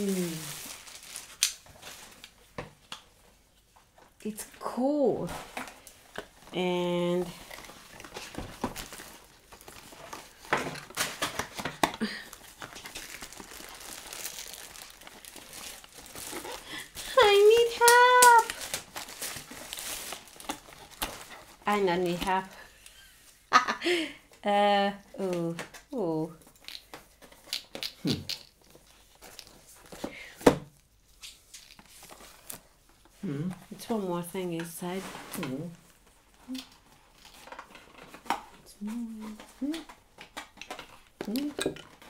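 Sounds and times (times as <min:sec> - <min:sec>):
packaging crinkling and rustling: 0:00.0 - 0:04.2, 0:05.3 - 0:22.7, 0:25.6 - 0:30.1, 0:30.7 - 0:33.2, 0:34.6 - 0:42.0.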